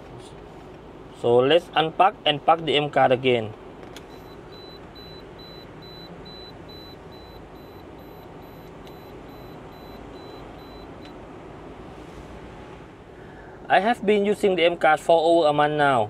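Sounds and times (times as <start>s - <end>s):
car engine hum: 0.0s - 16.0s
high-pitched beeping alarm: 4.1s - 11.0s.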